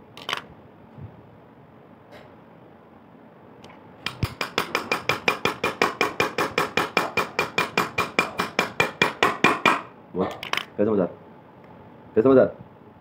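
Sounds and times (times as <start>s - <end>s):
hammer strikes on metal shaft: 4.1s - 9.9s.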